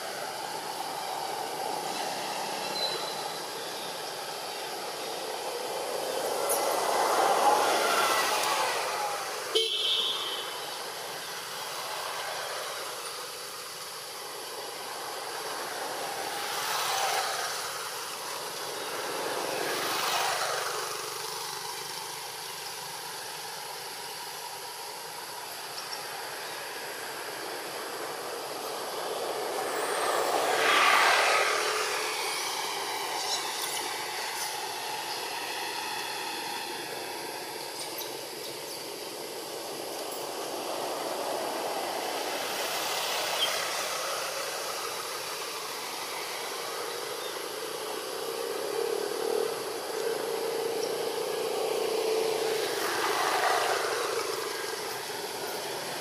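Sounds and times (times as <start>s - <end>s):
steady outdoor hiss: 0.0s - 56.0s
vehicles passing by: 0.0s - 56.0s.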